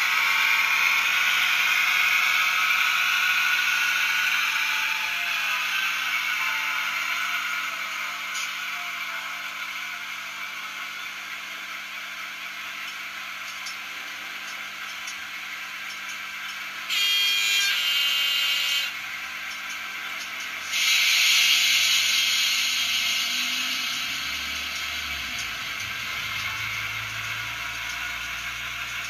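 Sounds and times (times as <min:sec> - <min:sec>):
diesel engine idling through speaker: 0:22.0 - 0:29.0.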